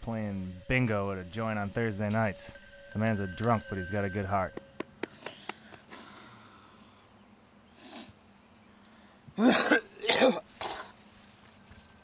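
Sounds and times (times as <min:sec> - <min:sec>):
man coughing: 0:09.4 - 0:10.9.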